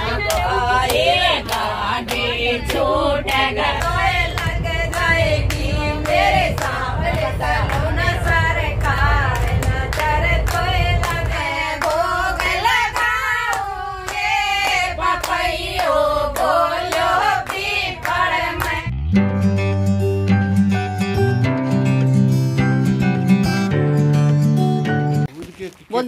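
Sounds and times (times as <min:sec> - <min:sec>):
voices singing together: 0:00.0 - 0:18.9
low rumble: 0:00.0 - 0:23.7.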